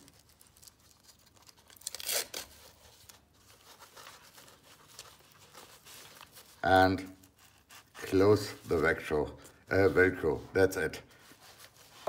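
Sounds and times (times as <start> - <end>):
velcro rasping: 0.0 - 8.6.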